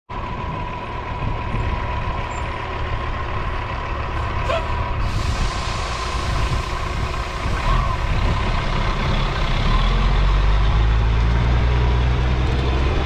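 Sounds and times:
diesel truck engine rumbling: 0:00.1 - 0:13.0
air hiss: 0:05.0 - 0:07.7.

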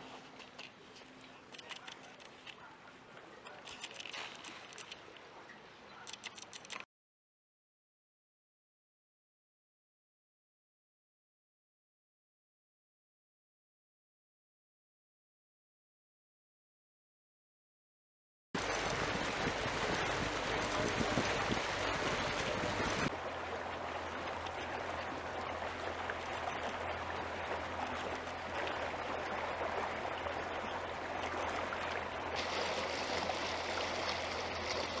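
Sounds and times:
rushing trickling water: 0:18.6 - 0:35.0.

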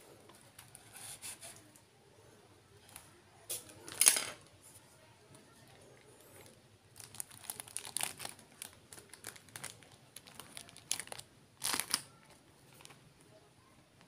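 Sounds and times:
paper wrapping crinkling: 0:07.0 - 0:13.0.

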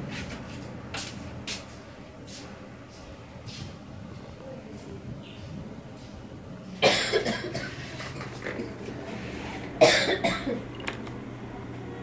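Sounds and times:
person coughing: 0:06.8 - 0:07.9, 0:09.8 - 0:10.6.

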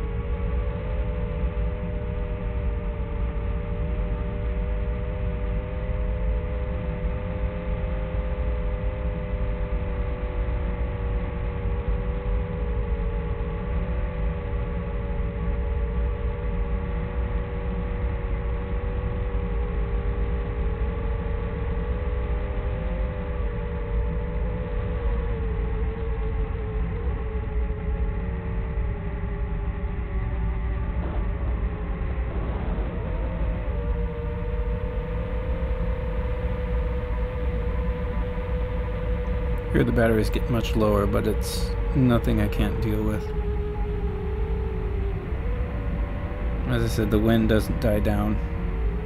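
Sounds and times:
drone motors whining: 0:22.0 - 0:49.0
wind rumble: 0:30.1 - 0:49.0.

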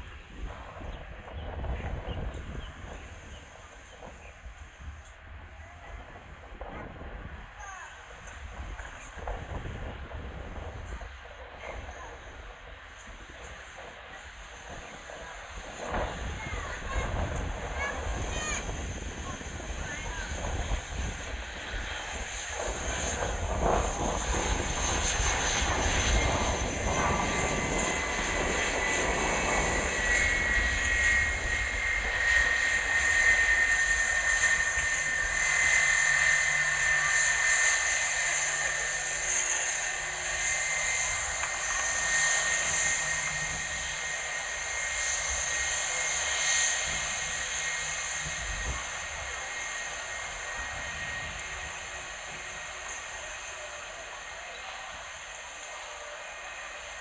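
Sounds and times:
jet engine roar with whine: 0:00.0 - 0:57.0.

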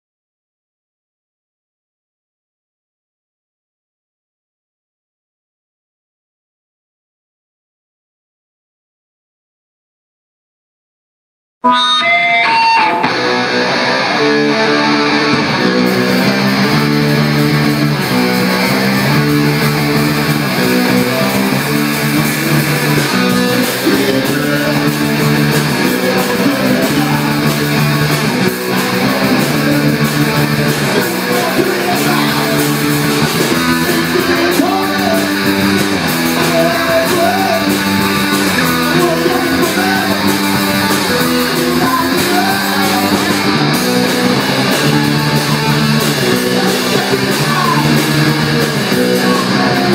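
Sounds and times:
drums: 0:11.6 - 0:49.9
electric guitar chords: 0:11.6 - 0:49.9.

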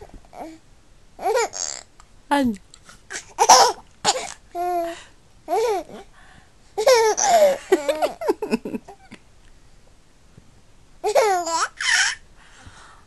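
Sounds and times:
baby laughing and squealing: 0:06.8 - 0:08.2, 0:11.0 - 0:12.2.

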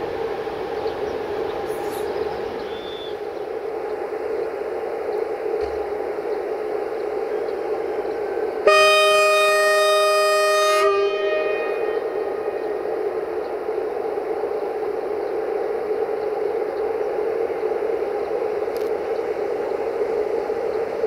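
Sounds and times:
train drone: 0:00.0 - 0:21.0
locomotive horn blast: 0:08.6 - 0:12.6.

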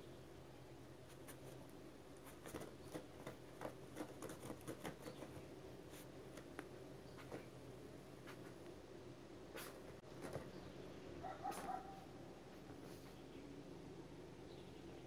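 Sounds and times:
low steady hum: 0:00.0 - 0:15.0
puppies scratching and clicking on rug: 0:02.2 - 0:07.5, 0:09.6 - 0:10.6.

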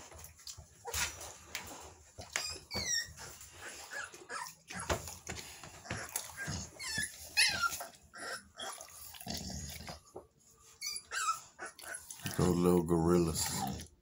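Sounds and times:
puppies whimpering and yipping: 0:02.2 - 0:09.1, 0:10.6 - 0:12.5.

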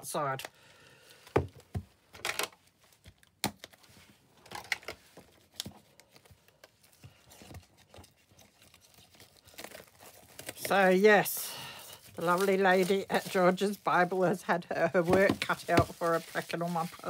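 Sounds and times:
plastic packaging clicking and crinkling: 0:01.2 - 0:11.0.

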